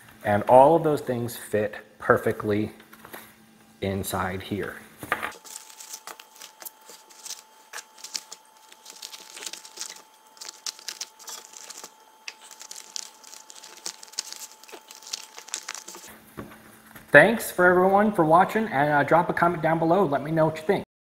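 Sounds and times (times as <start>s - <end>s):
fabric pouch rustling: 5.4s - 16.1s
small items clicking: 5.4s - 16.1s.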